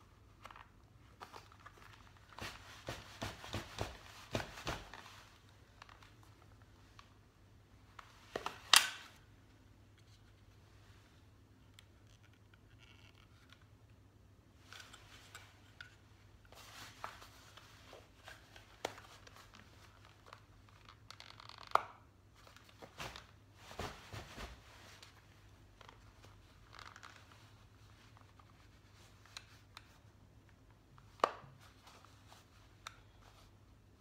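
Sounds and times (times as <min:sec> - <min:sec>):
fabric rustling and scraping: 0:01.1 - 0:06.9, 0:14.6 - 0:20.2, 0:22.4 - 0:30.1
holster clip clicks: 0:08.7 - 0:09.2.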